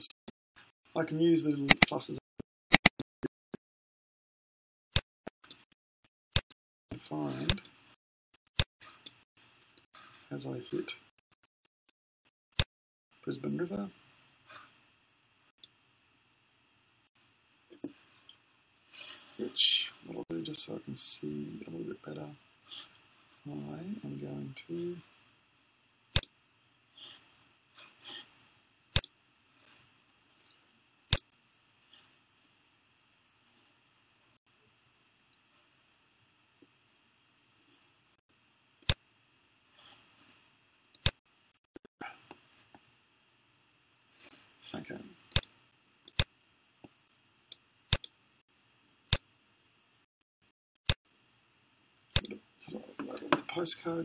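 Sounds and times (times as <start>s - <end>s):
low steady hiss: 13.2s - 41.5s, 51.1s - 54.0s
computer mouse clicking: 41.0s - 41.2s, 45.3s - 45.5s.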